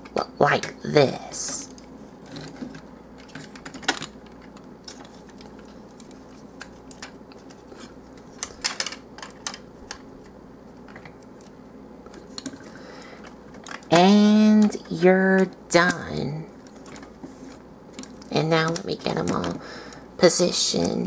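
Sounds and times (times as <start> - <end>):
plastic toy clicking and rattling: 1.4 - 10.0, 12.1 - 17.2, 17.9 - 19.6.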